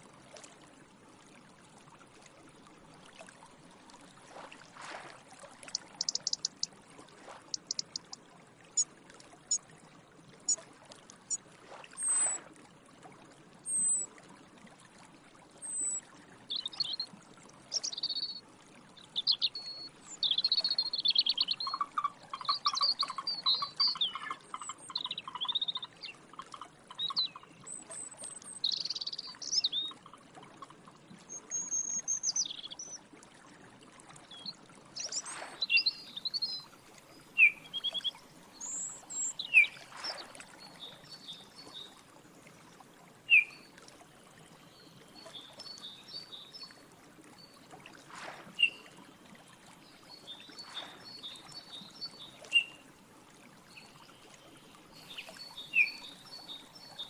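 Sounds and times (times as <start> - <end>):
running water trickle: 0.0 - 57.0
small birds singing: 5.7 - 6.7, 7.5 - 8.2, 15.7 - 17.0, 17.7 - 18.4, 19.0 - 26.2, 26.9 - 30.0, 31.3 - 33.0, 34.3 - 42.0, 43.3 - 43.7, 50.0 - 52.8, 55.0 - 57.0
sharp bird chirp: 5.8 - 6.7, 7.5 - 8.2.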